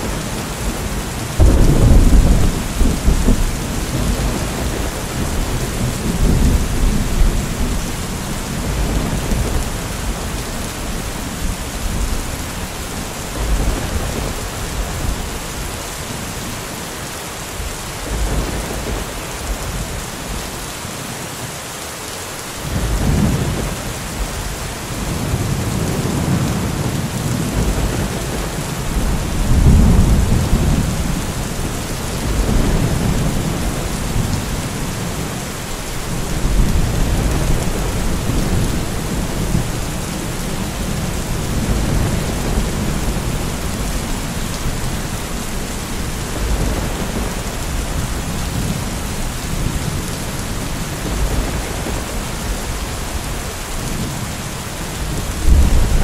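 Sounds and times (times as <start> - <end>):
rolling thunder: 0.0 - 15.5, 22.7 - 56.0
steady rain hiss: 0.0 - 56.0
loud thunderclap: 0.8 - 7.9, 24.9 - 35.4, 55.0 - 56.0.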